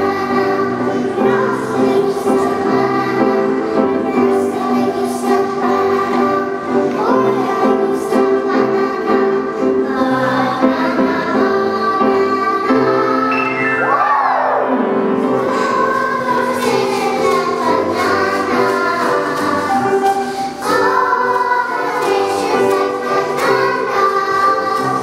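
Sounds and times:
girls' choir singing: 0:00.0 - 0:25.0.

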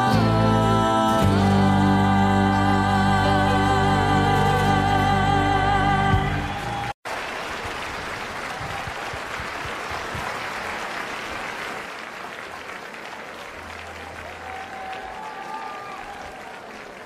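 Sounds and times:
small group applauding: 0:06.3 - 0:17.0.

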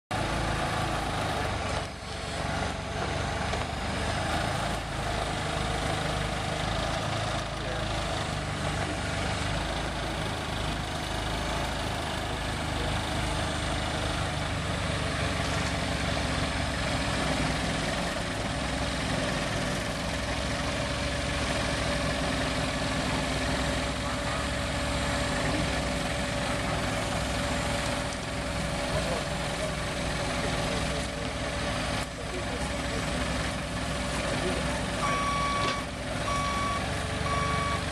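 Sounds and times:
diesel engine running: 0:00.1 - 0:37.9.

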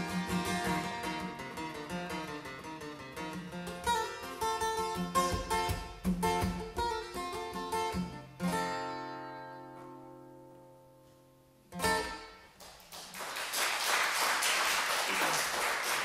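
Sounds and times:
acoustic guitar chords: 0:00.0 - 0:12.6
applause: 0:12.5 - 0:16.0.

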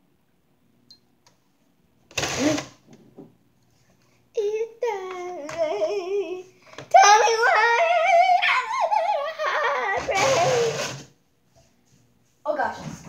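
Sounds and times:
child singing without words: 0:04.4 - 0:10.8.

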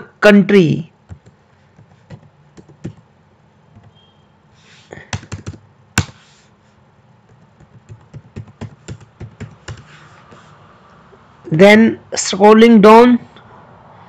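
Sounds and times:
computer keyboard keys clicking: 0:01.1 - 0:03.0, 0:05.1 - 0:06.1, 0:07.3 - 0:09.9.

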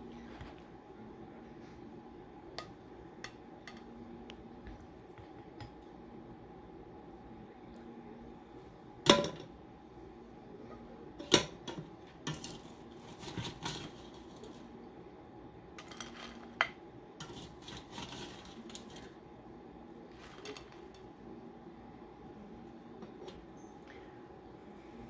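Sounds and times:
spoon scraping plate: 0:17.2 - 0:19.1.

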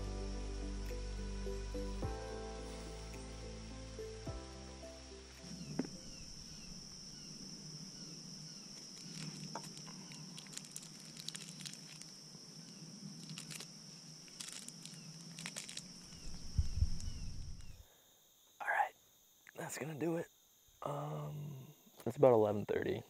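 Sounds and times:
high-pitched insect drone: 0:00.0 - 0:17.9.

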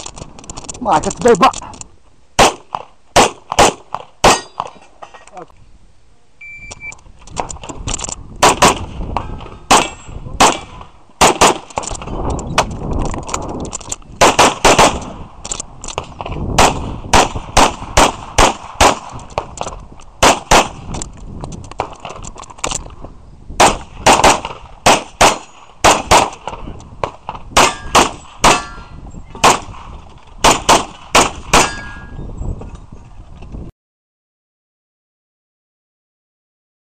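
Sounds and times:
pistol shots: 0:02.4 - 0:04.8, 0:08.4 - 0:11.9, 0:14.2 - 0:15.2, 0:16.0 - 0:19.6, 0:20.2 - 0:20.8, 0:23.6 - 0:32.1.

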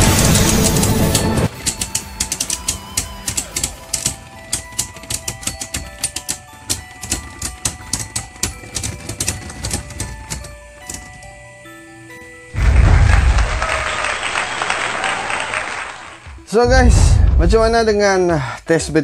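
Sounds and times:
background music with held notes: 0:00.0 - 0:19.0.

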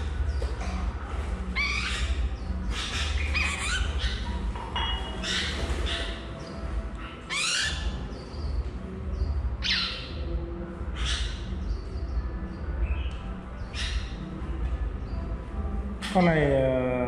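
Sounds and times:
bird giving harsh squawks: 0:01.5 - 0:04.4.

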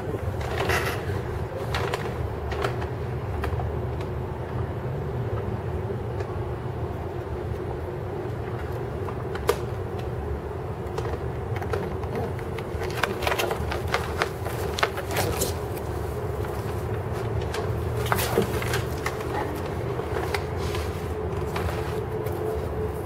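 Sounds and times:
straw and cardboard crackling: 0:00.0 - 0:04.6, 0:10.8 - 0:23.0
low hum of city background: 0:00.0 - 0:23.0.

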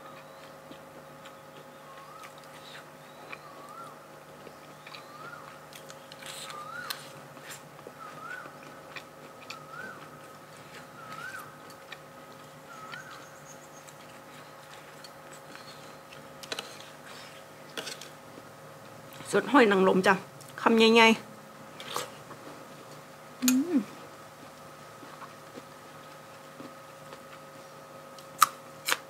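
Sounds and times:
chewing and crunching food: 0:00.0 - 0:19.4, 0:24.4 - 0:29.0
bird calling: 0:01.8 - 0:02.4, 0:03.0 - 0:04.0, 0:04.8 - 0:05.6, 0:06.4 - 0:07.1, 0:08.0 - 0:08.6, 0:09.5 - 0:10.1, 0:12.7 - 0:14.6.

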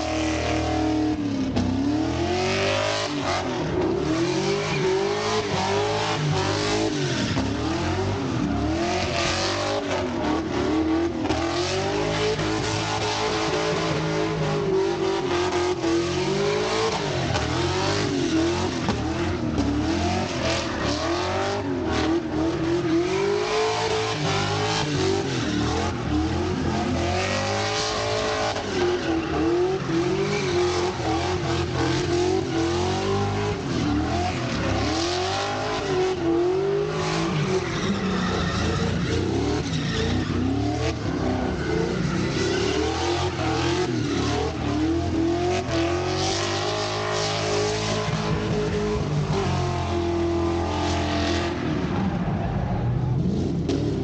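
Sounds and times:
car engines revving: 0:00.0 - 0:54.0.

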